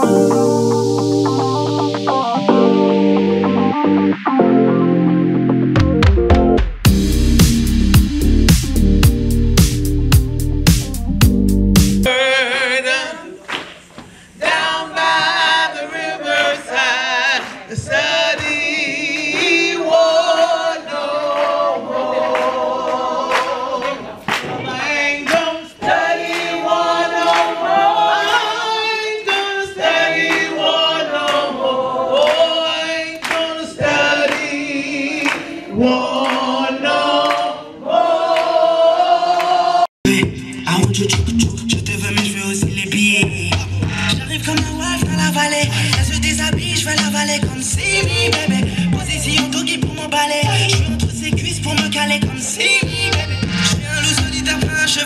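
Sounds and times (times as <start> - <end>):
choir singing: 12.1 - 13.5, 14.4 - 39.9.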